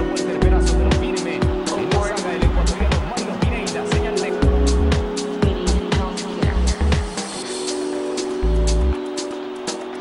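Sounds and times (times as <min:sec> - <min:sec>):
electronic music with kick drums: 0:00.0 - 0:10.0.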